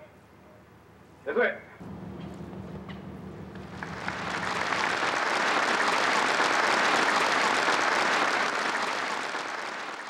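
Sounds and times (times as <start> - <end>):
crowd applauding: 2.9 - 10.0.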